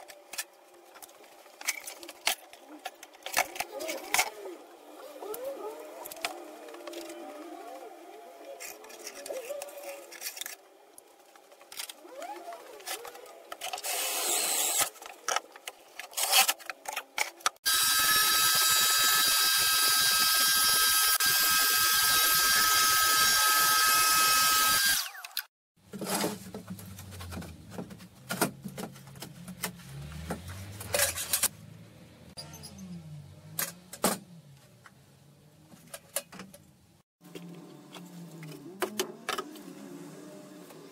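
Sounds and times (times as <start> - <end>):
power tool motor whine: 13.8 - 14.9, 17.6 - 25.5.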